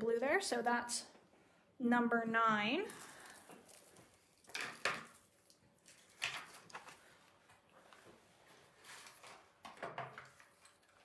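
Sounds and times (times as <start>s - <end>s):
objects rustling on table: 2.9s - 11.0s.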